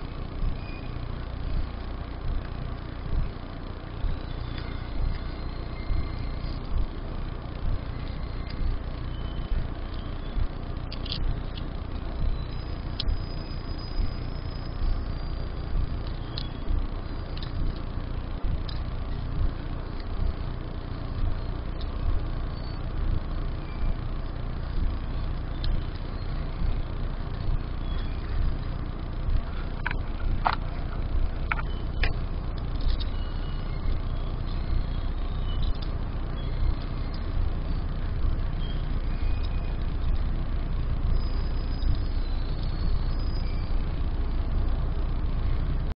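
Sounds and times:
low steady rumble: 0:00.0 - 0:45.9
light clicks of metal tripod: 0:10.8 - 0:11.7.

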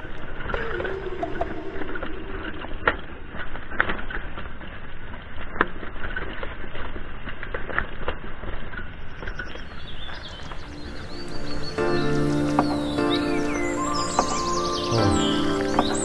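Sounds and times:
mountain bike rattling over rocks: 0:03.3 - 0:10.4.

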